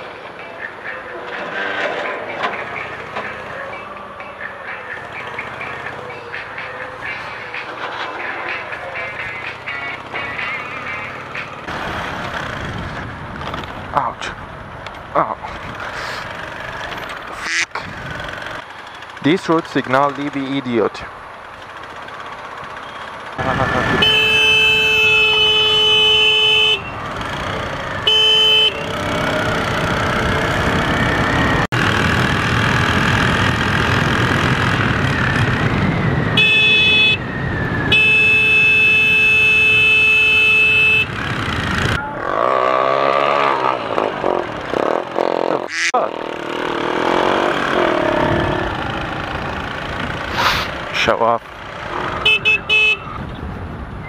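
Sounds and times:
motorcycle engine: 0.0s - 53.6s
wind noise: 12.4s - 16.0s, 29.8s - 39.0s, 52.1s - 54.0s
vehicle horn blasts: 23.4s - 27.0s, 28.0s - 29.0s, 36.3s - 37.2s, 37.9s - 41.2s, 52.2s - 53.2s.

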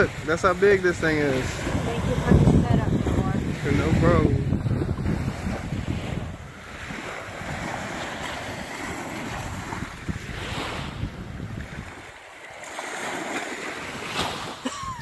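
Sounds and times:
surf washing on beach: 0.0s - 15.0s
wind buffeting microphone: 0.0s - 15.0s.

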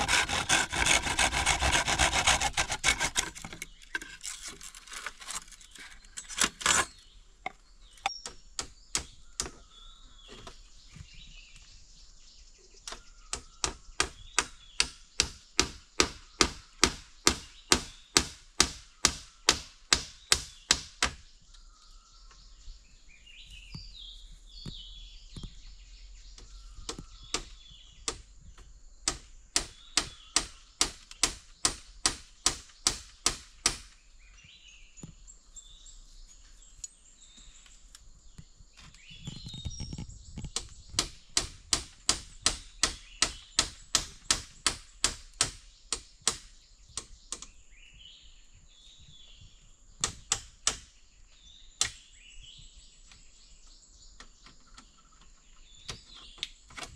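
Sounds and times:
birds chirping: 0.0s - 56.9s.

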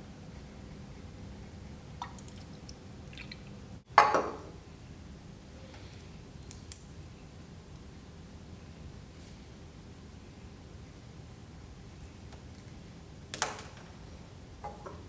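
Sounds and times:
liquid splashing: 2.0s - 3.6s.

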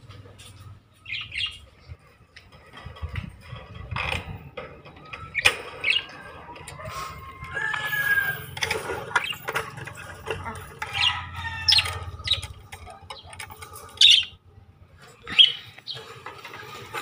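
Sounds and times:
budgerigars chirping: 1.0s - 1.6s, 10.9s - 13.3s, 13.9s - 14.4s
cage wire clicking and rattling: 7.4s - 14.4s.

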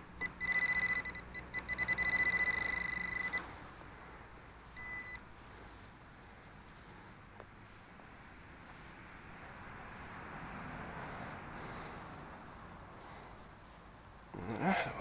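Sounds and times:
metal detector pinpointer beeping: 0.2s - 3.5s, 4.7s - 5.2s.

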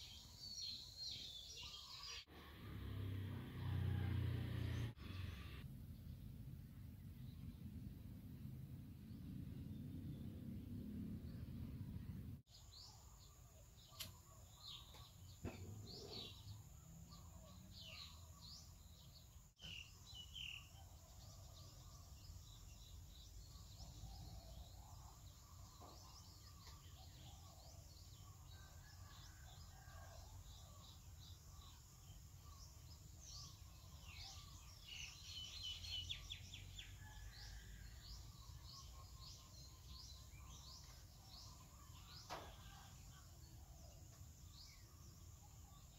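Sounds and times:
low background rumble: 5.5s - 12.5s
birds chirping: 9.1s - 28.7s.

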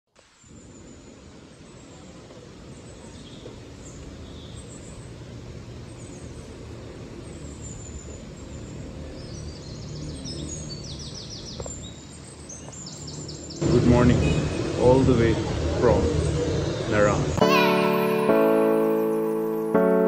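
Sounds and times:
bird chirping: 0.4s - 5.3s, 5.9s - 15.1s.

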